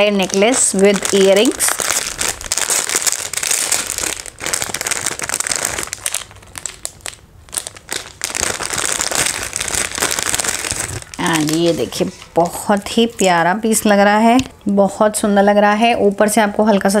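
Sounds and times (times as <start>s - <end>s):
plastic and tissue paper crinkling: 0.0s - 13.2s.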